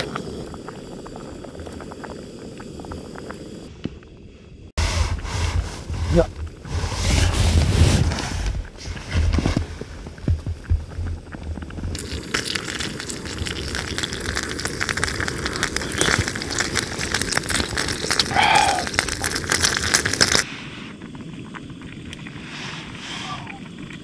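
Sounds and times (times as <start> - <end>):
meat sizzling in a pan: 11.9 - 20.5.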